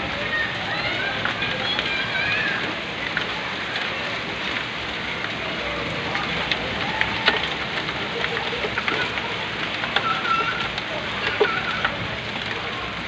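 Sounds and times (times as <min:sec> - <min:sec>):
heavy rain pouring: 0:00.0 - 0:13.0
drops ticking on hard surfaces: 0:00.2 - 0:13.0.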